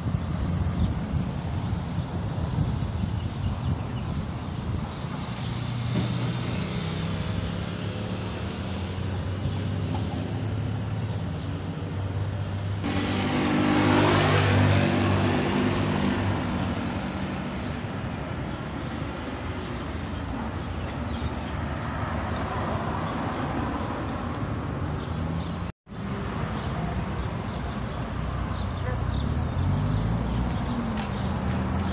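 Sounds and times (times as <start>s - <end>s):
traffic hum: 0.0s - 31.9s
vehicle engine passing close: 12.8s - 17.6s.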